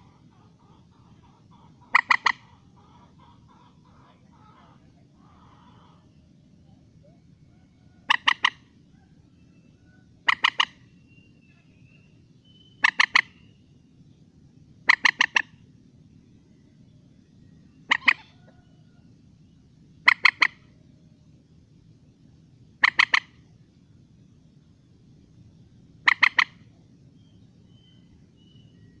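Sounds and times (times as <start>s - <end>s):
moorhen calling: 0.0s - 13.8s, 14.8s - 15.7s, 17.7s - 20.8s, 22.7s - 23.6s, 26.0s - 29.0s.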